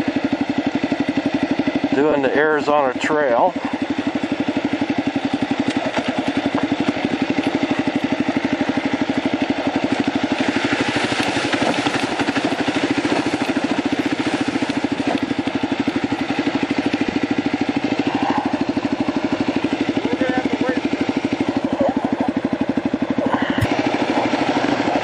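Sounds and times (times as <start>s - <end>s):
motorcycle engine running: 0.0s - 25.0s
water splashing: 9.5s - 17.3s.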